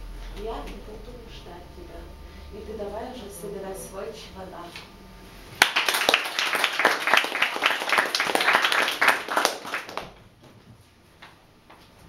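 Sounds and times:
audience clapping: 5.6s - 10.2s.

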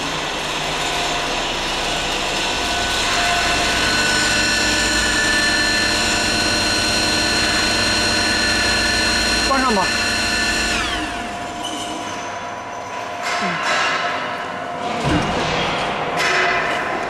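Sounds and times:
mixer motor humming and whining: 0.0s - 12.1s.

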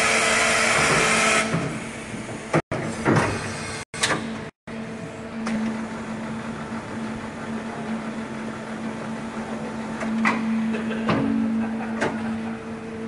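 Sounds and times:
machine hum: 3.7s - 13.0s.

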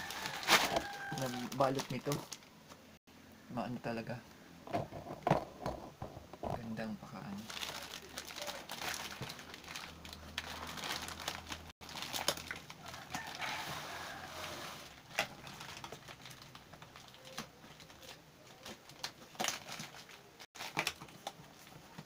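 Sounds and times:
cardboard box rustling and scraping: 0.0s - 1.4s, 13.2s - 15.0s.

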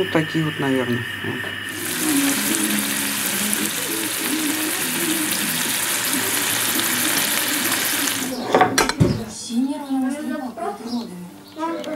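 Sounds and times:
fish frying in hot oil: 1.7s - 8.4s.

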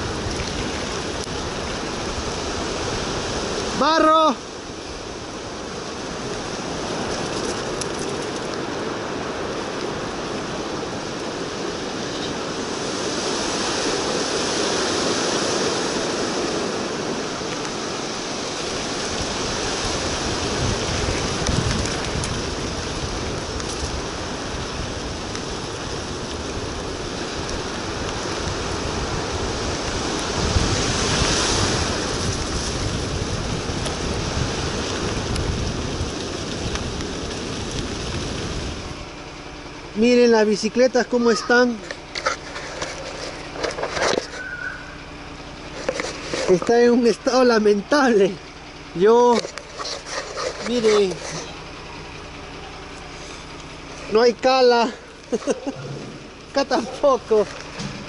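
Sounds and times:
wind rushing over microphone: 0.0s - 39.2s.

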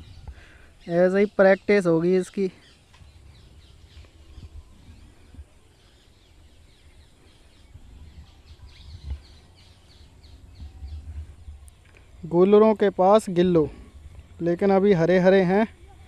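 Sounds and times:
faint birds chirping: 0.0s - 16.0s
low rumble: 2.9s - 12.3s.

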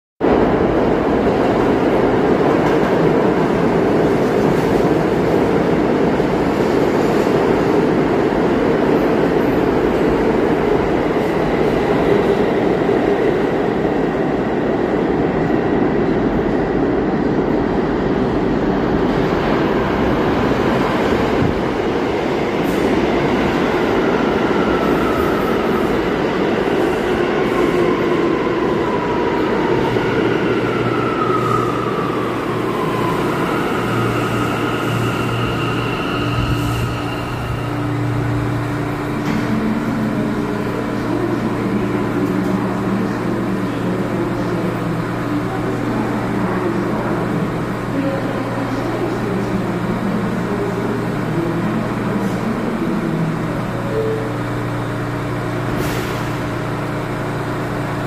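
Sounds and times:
subway trains rumbling: 0.2s - 58.0s.

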